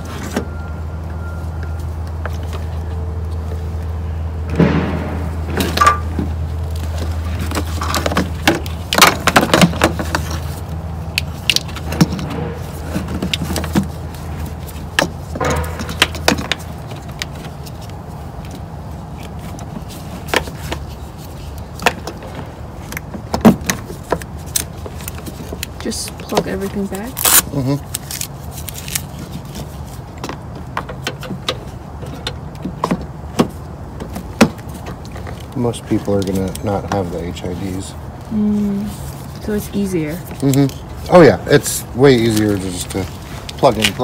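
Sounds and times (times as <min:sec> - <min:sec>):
steady low hum: 0:00.0 - 0:30.7.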